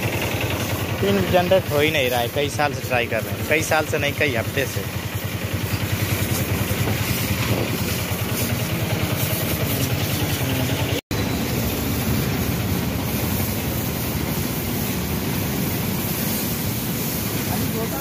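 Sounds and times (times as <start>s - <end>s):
motor running with fast pulsing: 0.0s - 11.0s.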